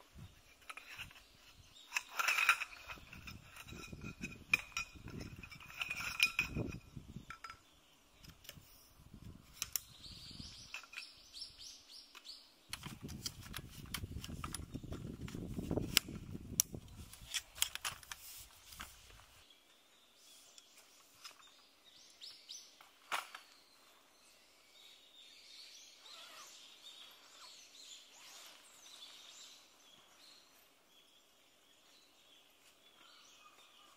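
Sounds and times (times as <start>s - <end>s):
poles scraping and rustling: 0.1s - 7.6s, 12.7s - 19.5s
metal tent poles clinking: 0.4s - 7.7s, 9.5s - 11.4s
tent pole sections clicking: 9.5s - 11.2s, 12.1s - 19.4s.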